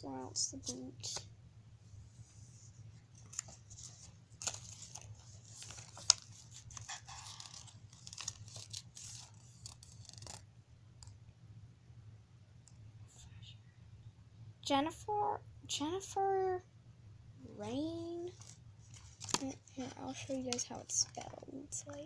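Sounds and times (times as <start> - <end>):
faint low hum: 0.0 - 22.0
toy packaging rustling and crinkling: 3.2 - 10.4, 18.3 - 21.5.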